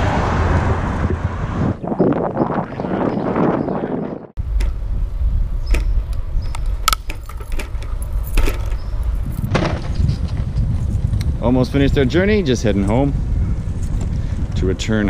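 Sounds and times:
wheels rumbling on road: 0.0 - 3.7, 4.4 - 15.0
wind on microphone: 0.0 - 15.0
bike rattles and clicks: 4.4 - 15.0.

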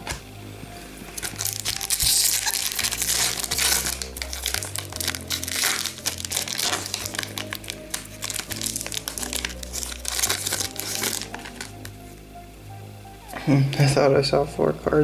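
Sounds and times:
foil wrapper crinkling: 1.2 - 12.0.

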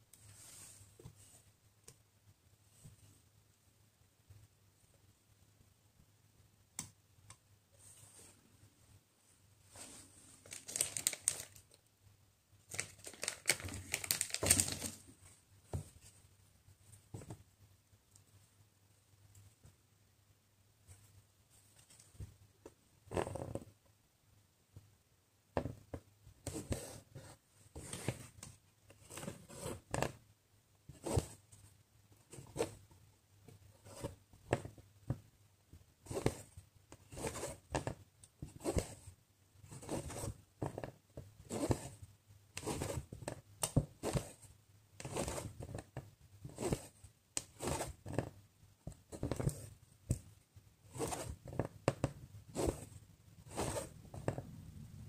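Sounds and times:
needle poking through fabric: 42.6 - 48.3, 50.9 - 54.4
thread rasping through fabric: 42.6 - 50.2, 50.8 - 54.4.

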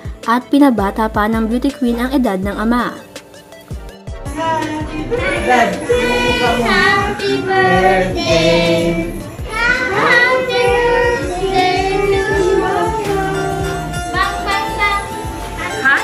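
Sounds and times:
background music: 0.0 - 16.0
children singing: 4.3 - 15.2.

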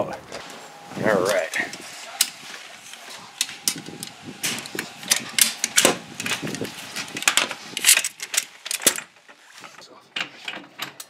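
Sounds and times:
ratchet strap clicking: 1.5 - 9.2.

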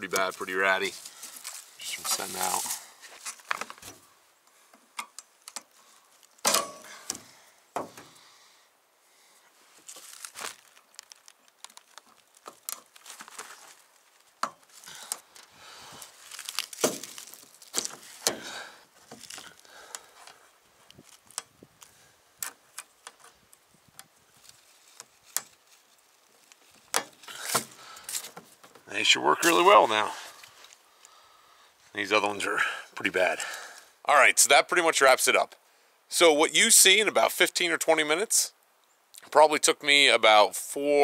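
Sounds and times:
crinkling: 0.0 - 7.4, 9.2 - 31.9.

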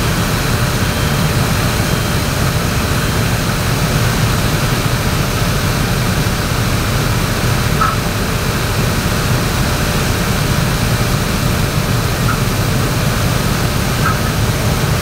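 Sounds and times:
diesel engines rumbling: 0.0 - 15.0.

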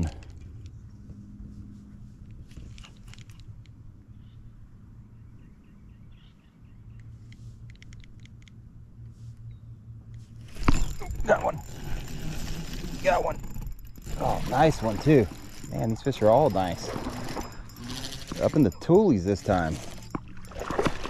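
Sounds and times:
electric trolling motor hum: 10.3 - 21.0
fishing reel clicks: 10.9 - 20.6.

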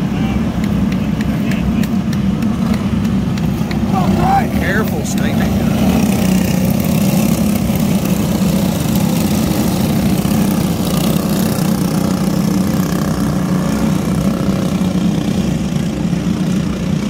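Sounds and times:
kart engines droning: 0.0 - 17.0.

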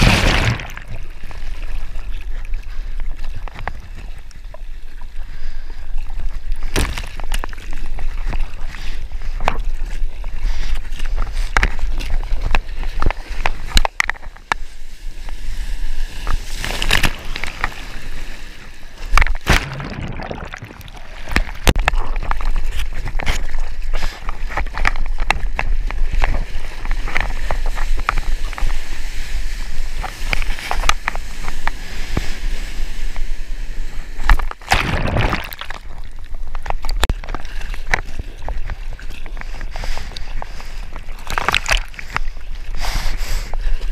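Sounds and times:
seawater sloshing and splashing: 0.0 - 5.1, 34.3 - 43.0
hand paddling splashes: 19.4 - 21.6.

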